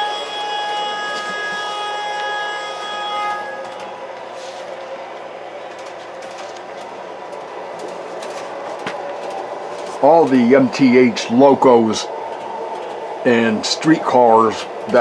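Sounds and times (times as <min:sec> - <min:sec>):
steady multi-note tone: 0:00.0 - 0:05.7.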